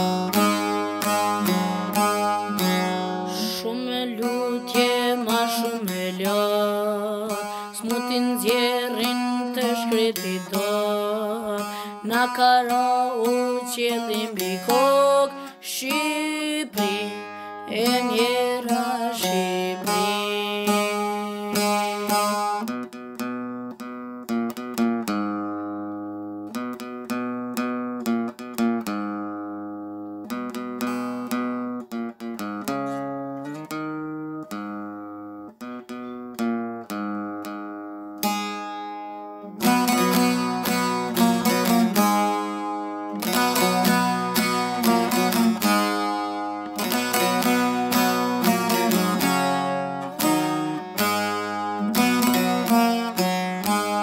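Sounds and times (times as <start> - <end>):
plucked string instrument: 0.0 - 54.0
boy singing a lament: 3.3 - 21.9.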